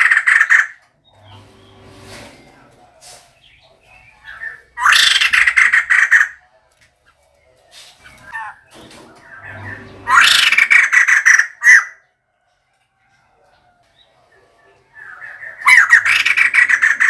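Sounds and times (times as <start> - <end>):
laughingthrush harsh chattering calls: 0.0 - 0.8, 3.4 - 6.4, 7.9 - 12.0, 15.0 - 17.0.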